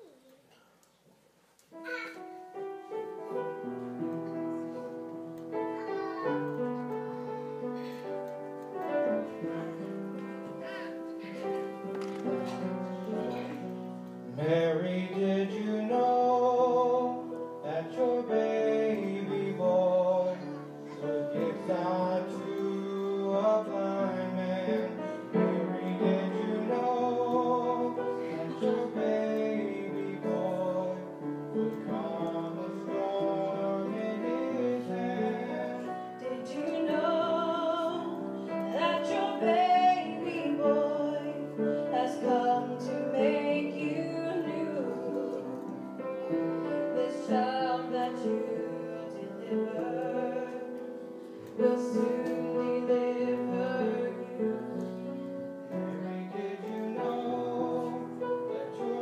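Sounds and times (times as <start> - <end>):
instrumental accompaniment: 1.6 - 59.0
woman singing with vibrato: 34.4 - 50.6.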